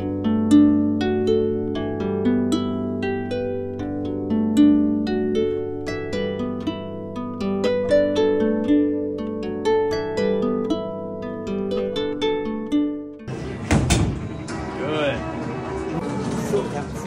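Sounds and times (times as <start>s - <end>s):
plucked string melody: 0.0s - 16.3s.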